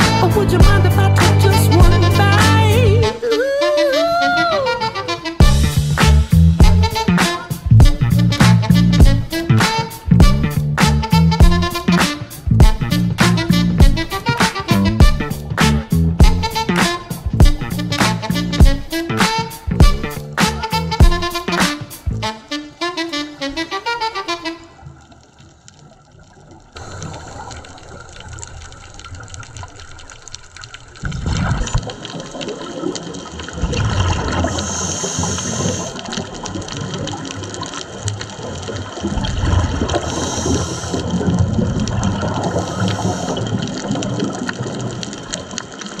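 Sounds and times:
underwater bubbles gurgling: 24.7 - 46.0.

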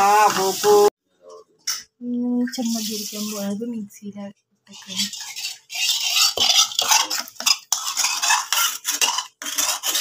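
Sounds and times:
spoon scraping in metal jar: 4.7 - 10.0.

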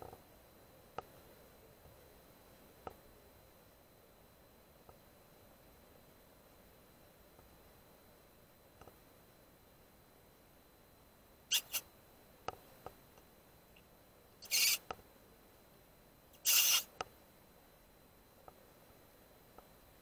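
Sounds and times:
harsh hissy animal calls: 11.5 - 11.8, 14.4 - 14.8, 16.4 - 16.9.

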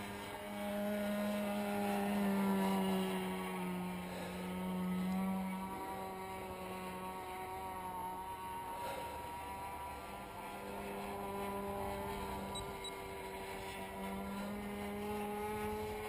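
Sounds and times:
model plane engine drone: 0.0 - 16.0.

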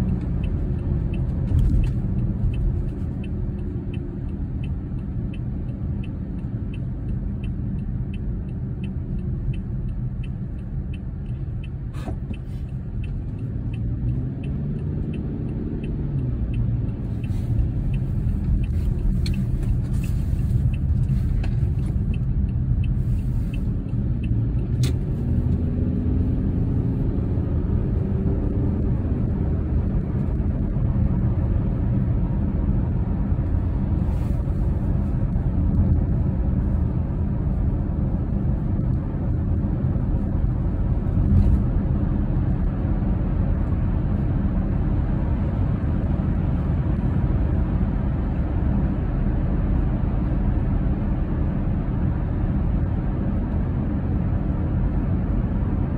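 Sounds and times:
light regular ticking: 0.0 - 28.0
car engine and road rumble: 0.0 - 55.9.

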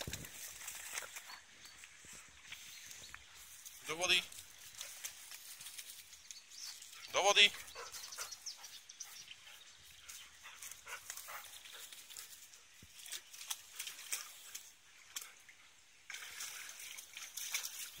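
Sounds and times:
dog splashing in water: 0.0 - 1.5, 10.6 - 18.0.

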